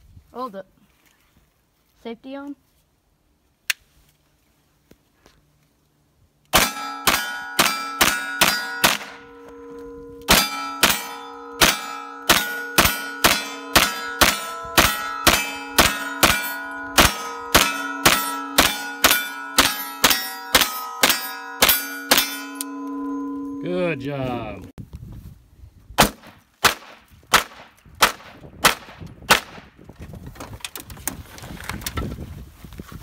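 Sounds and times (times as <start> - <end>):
rifle shots: 6.5 - 9.2, 10.3 - 22.3, 26.0 - 29.6
steel targets ringing: 6.6 - 24.7.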